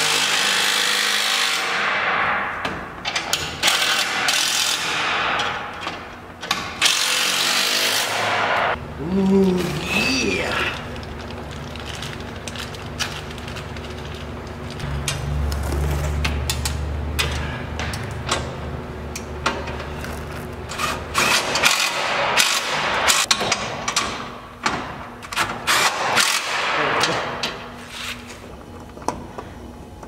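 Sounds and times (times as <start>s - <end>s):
steady low hum: 8.7s - 21.2s.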